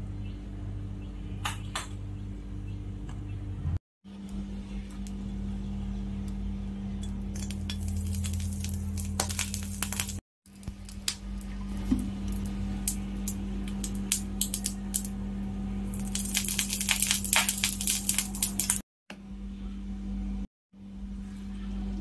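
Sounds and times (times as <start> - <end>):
low hum: 0.0 - 22.0
oil crackling in a pan: 7.0 - 15.2, 15.8 - 18.8.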